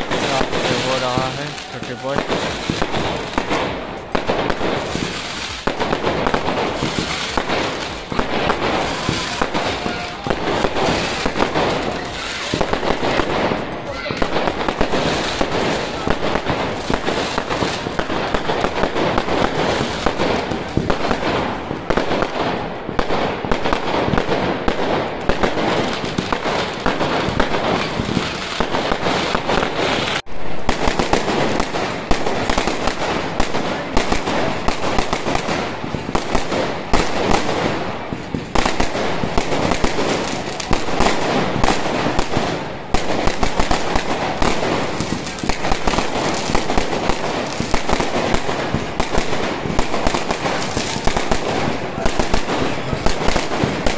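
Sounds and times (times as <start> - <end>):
fireworks crackling and banging: 0.0 - 53.9.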